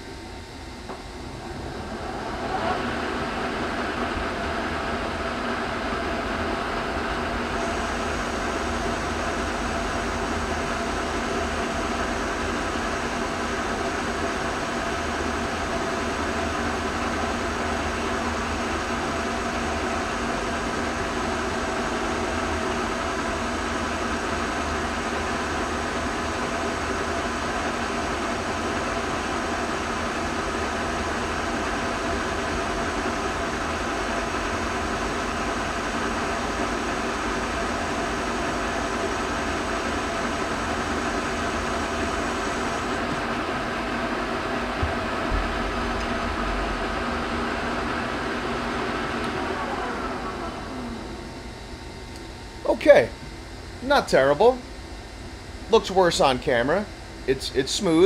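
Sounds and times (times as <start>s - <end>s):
steady machine tones: 0.0s - 58.0s.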